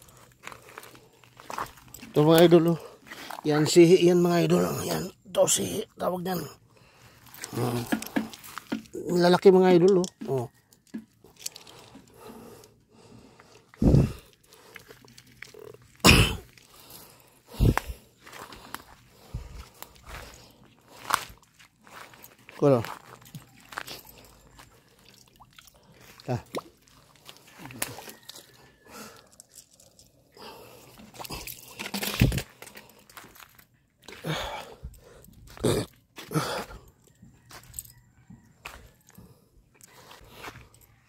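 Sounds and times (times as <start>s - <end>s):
footsteps crunching on rubble: 0.0s - 3.8s, 7.1s - 9.5s, 13.9s - 24.9s, 26.0s - 29.9s, 30.9s - 38.0s, 38.6s - 41.0s.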